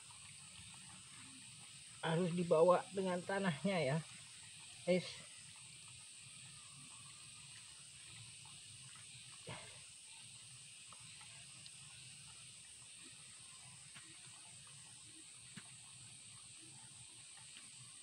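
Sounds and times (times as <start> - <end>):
faint high-pitched hiss: 0.0 - 18.0.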